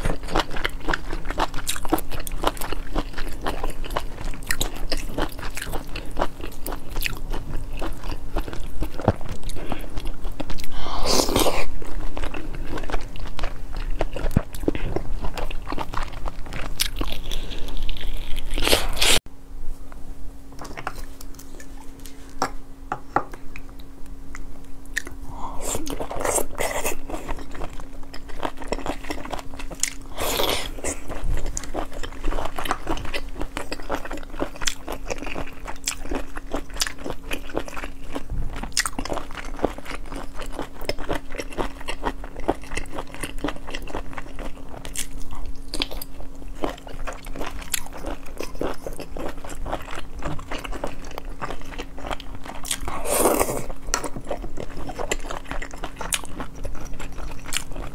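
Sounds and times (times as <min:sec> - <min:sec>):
close chewing and biting: 0:00.0 - 0:19.2, 0:24.9 - 0:57.9
hissy mouth sounds: 0:10.6 - 0:11.8.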